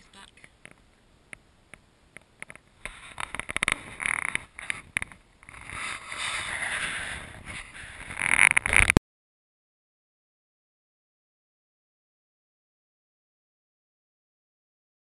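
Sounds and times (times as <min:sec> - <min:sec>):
rustling handling noise on microphone: 0:02.4 - 0:09.0.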